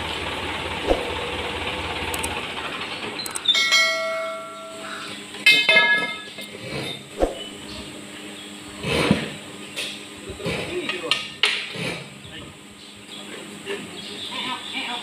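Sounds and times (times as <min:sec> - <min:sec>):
low engine hum: 0:00.0 - 0:03.4.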